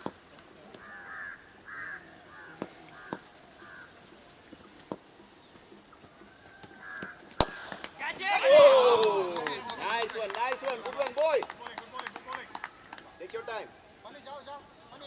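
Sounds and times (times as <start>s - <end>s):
crow cawing: 0.8s - 3.9s, 6.6s - 7.3s
sharp crack: 7.4s - 9.6s.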